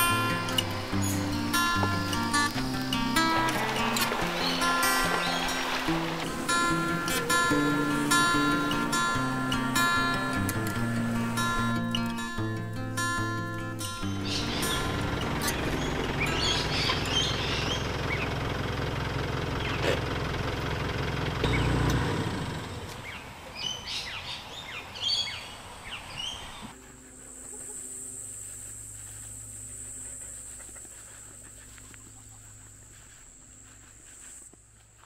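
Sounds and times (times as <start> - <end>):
truck engine rumbling: 0.0 - 24.0
birds chirping: 0.0 - 35.0
high-pitched insect drone: 26.8 - 34.3.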